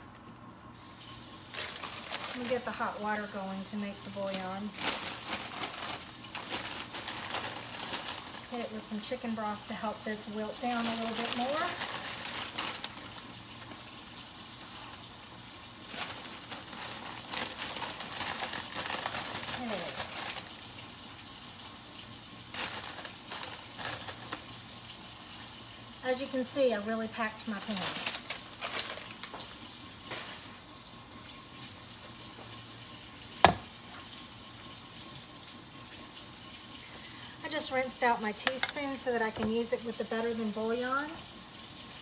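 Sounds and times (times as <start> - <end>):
greens sizzling in a pan: 0.8 - 42.0
plastic bag crinkling: 1.4 - 20.9, 22.4 - 24.8, 25.5 - 30.6
object knocked on countertop: 33.4 - 33.7.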